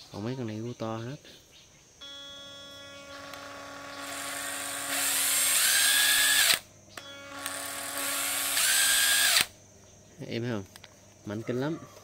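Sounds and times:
impact driver motor whine: 2.0 - 9.6.

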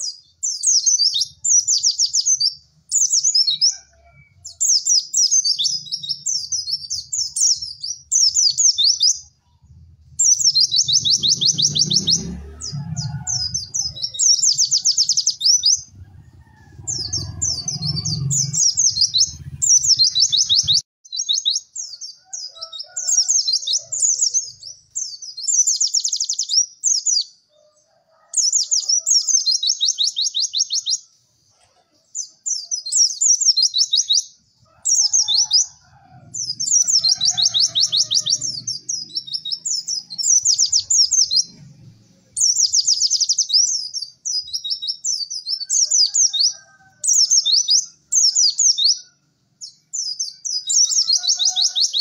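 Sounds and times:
bird chattering trills: 10.2 - 27.2, 31.7 - 41.6.

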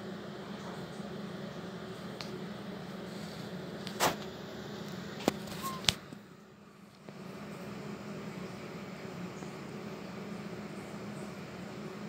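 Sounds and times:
wood stove fire rushing: 0.0 - 6.3.

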